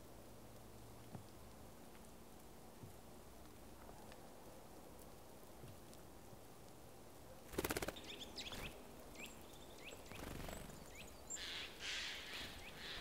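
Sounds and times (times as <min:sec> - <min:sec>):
bird wings fluttering: 0:07.5 - 0:08.8, 0:10.1 - 0:10.9
songbirds chirping: 0:07.5 - 0:13.0.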